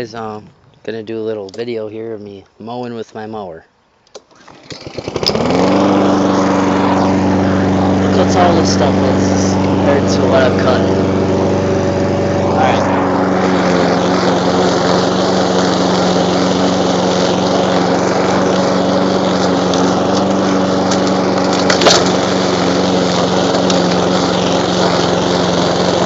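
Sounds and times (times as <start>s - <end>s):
lawn mower cutting grass: 4.2s - 26.0s
sharp knock under mower: 19.3s - 22.3s.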